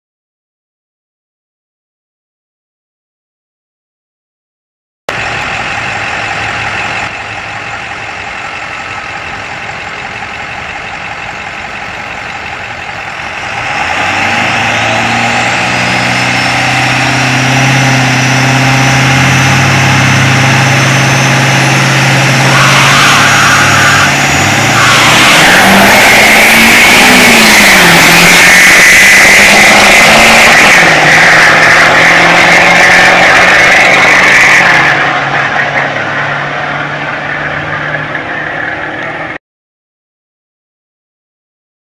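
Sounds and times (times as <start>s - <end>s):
pickup engines idling: 5.1s - 15.2s
high whine: 5.1s - 39.4s
trucks accelerating hard: 5.1s - 39.4s.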